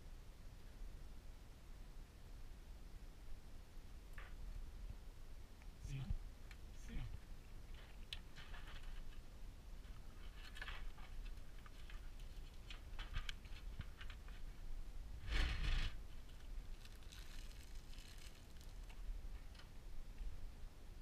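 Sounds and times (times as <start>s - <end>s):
scrape on computer case: 15.2s - 16.0s
plastic rustling: 15.3s - 19.6s.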